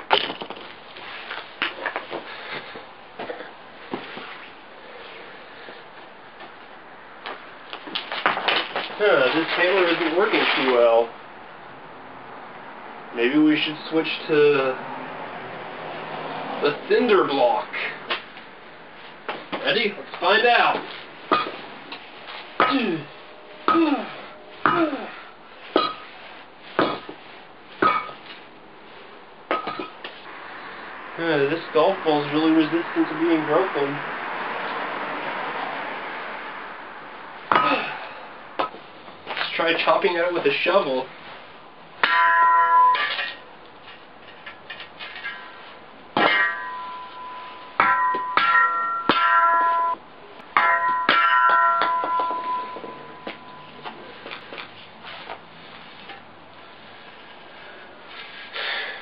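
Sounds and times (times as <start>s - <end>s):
blade ringing: 42.0s - 43.5s, 46.2s - 50.0s, 50.6s - 53.9s.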